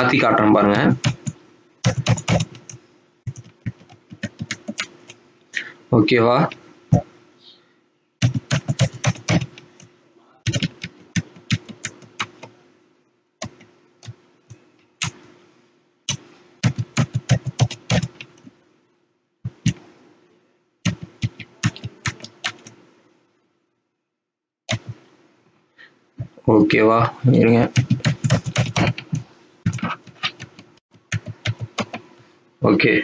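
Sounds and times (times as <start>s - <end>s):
computer keyboard typing: 1.0s - 5.2s, 8.2s - 9.9s, 10.5s - 12.6s, 16.1s - 18.5s, 20.9s - 22.8s, 24.7s - 25.0s, 27.7s - 32.0s.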